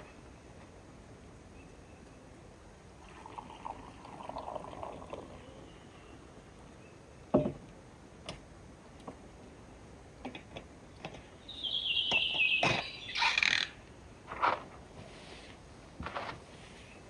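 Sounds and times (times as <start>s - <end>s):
objects knocking on wooden table: 7.3s - 7.6s.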